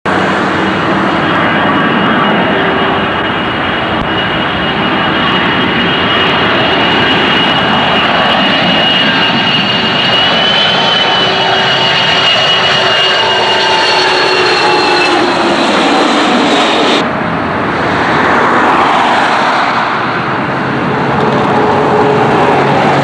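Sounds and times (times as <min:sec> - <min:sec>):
jet aircraft noise with high whine: 0:00.1 - 0:23.0.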